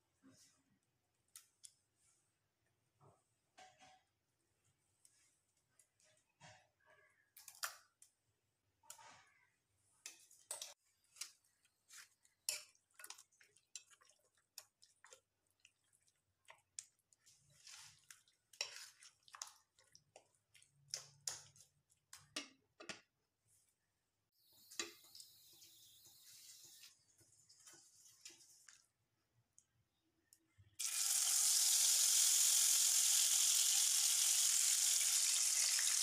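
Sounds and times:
wet clicks and scrapes in bowl: 10.0s - 23.1s.

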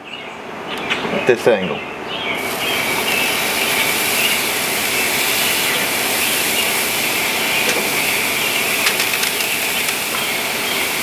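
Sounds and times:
steak sizzling on a grill: 2.4s - 11.0s.

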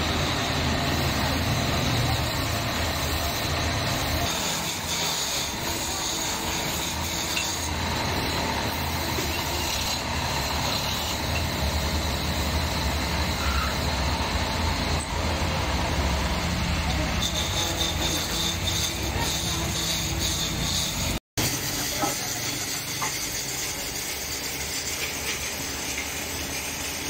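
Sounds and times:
turning tool cutting wood: 0.0s - 27.0s
wood lathe humming: 0.0s - 27.0s.

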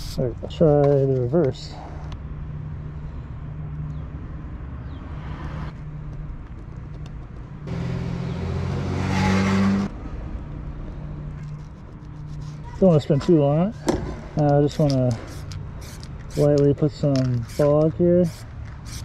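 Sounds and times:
motor vehicle passing: 4.6s - 11.3s.

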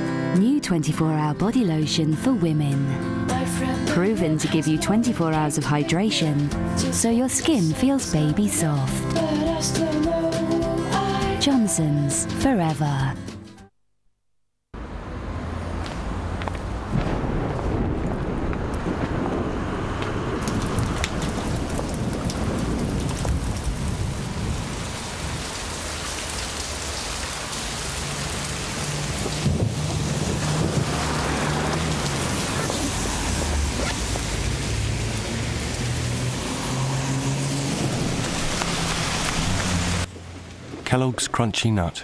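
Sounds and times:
heavy rain pouring: 17.0s - 41.2s.

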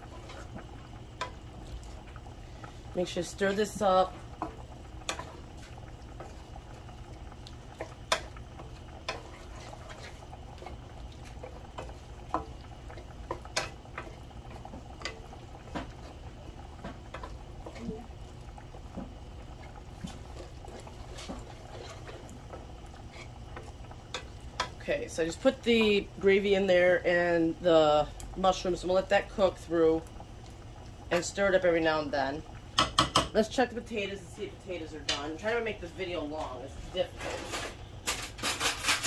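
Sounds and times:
food bubbling: 0.0s - 39.0s
wooden spoon scraping a pan: 9.0s - 12.5s, 19.6s - 24.7s, 36.4s - 39.0s.

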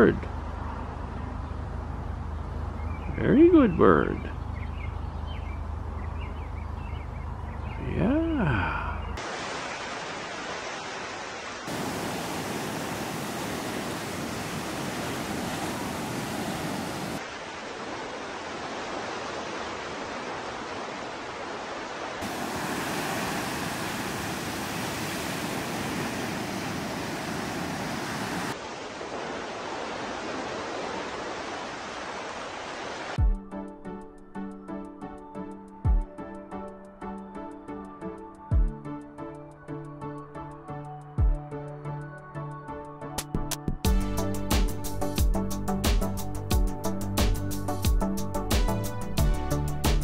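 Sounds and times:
waves on rocky shore: 9.2s - 33.2s.

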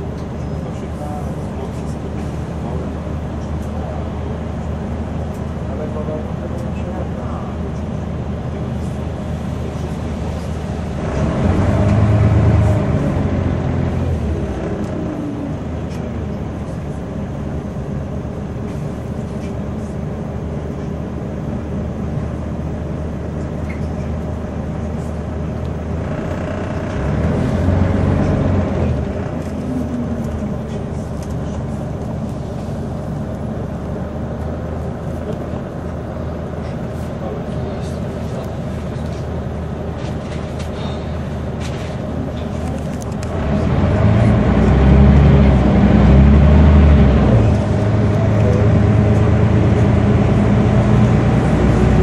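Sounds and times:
bus engine and road drone: 0.0s - 52.0s.

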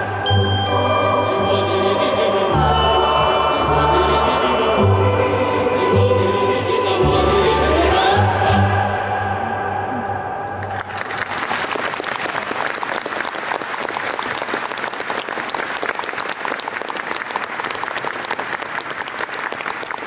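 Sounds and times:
choir and orchestra chord: 0.0s - 10.8s
audience applause: 10.6s - 20.0s.

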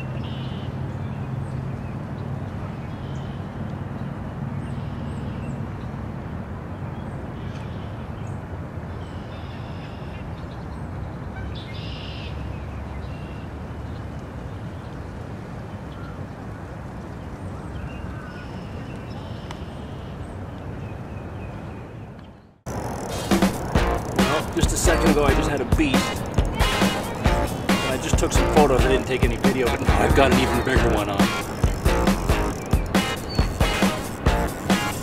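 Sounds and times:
outdoor background noise: 0.0s - 35.0s
small birds chirping: 17.1s - 35.0s
low hum: 22.7s - 35.0s.

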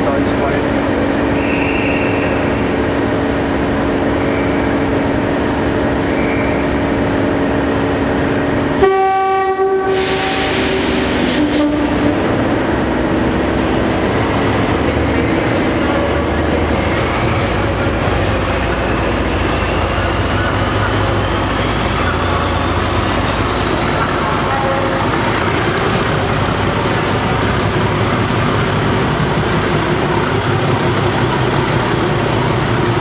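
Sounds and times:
diesel locomotive engine running: 0.0s - 33.0s
locomotive horn: 8.8s - 10.6s, 11.3s - 12.4s.

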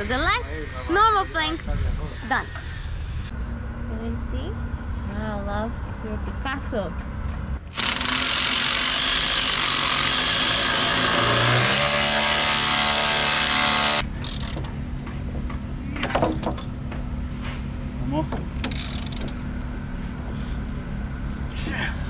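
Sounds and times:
cordless drill boring into wood: 7.7s - 14.0s.

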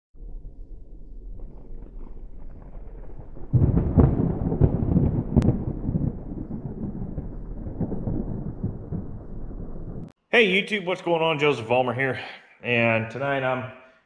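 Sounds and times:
thunder rumbling: 0.2s - 10.2s.

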